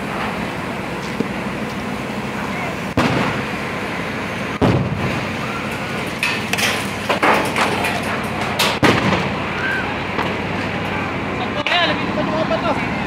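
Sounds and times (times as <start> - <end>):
firework bangs: 2.9 - 3.6, 4.5 - 7.7, 8.7 - 10.4.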